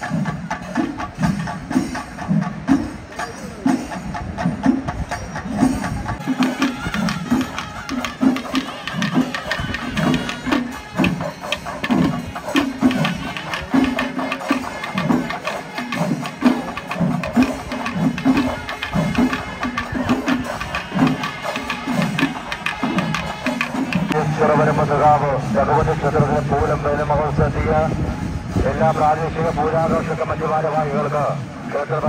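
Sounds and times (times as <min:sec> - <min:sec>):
clatter of sharper drum strokes: 0:00.0 - 0:24.2
drums beaten in steady rhythm: 0:00.0 - 0:32.0.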